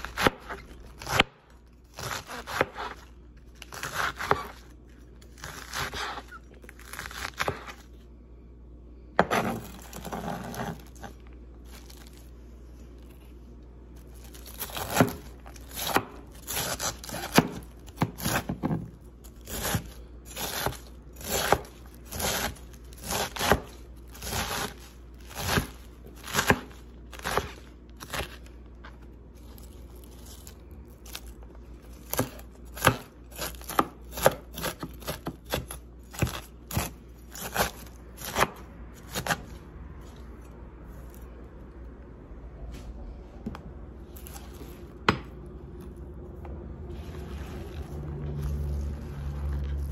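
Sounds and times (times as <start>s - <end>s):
knife chopping cabbage on board: 0.0s - 7.8s, 9.2s - 11.1s, 14.5s - 28.4s, 32.0s - 39.6s.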